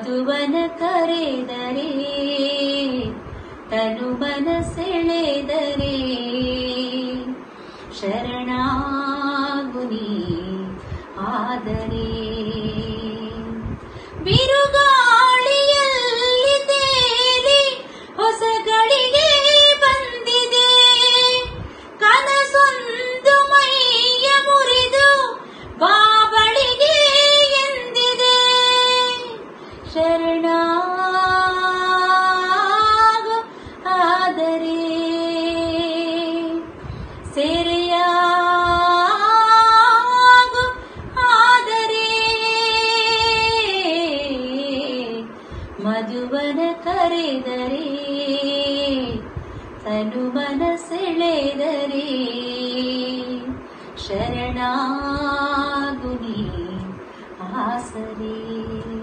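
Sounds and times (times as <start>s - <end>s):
singer breathing: 3.2s - 3.7s, 7.5s - 8.0s, 10.8s - 11.2s, 13.8s - 14.2s, 17.8s - 18.2s, 21.6s - 22.0s, 25.4s - 25.8s, 29.6s - 29.9s, 33.5s - 33.9s, 36.8s - 37.3s, 45.3s - 45.8s, 49.3s - 49.8s, 57.0s - 57.4s.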